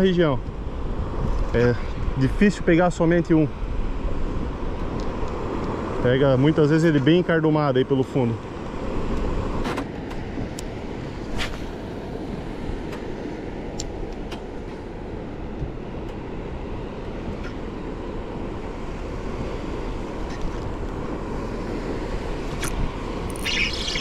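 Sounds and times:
wind noise on microphone: 0:00.4 - 0:02.5.

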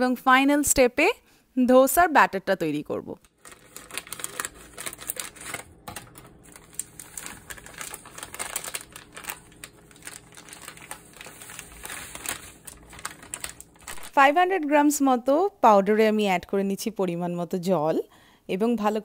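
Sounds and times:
plastic packet crinkling: 0:03.2 - 0:14.4.

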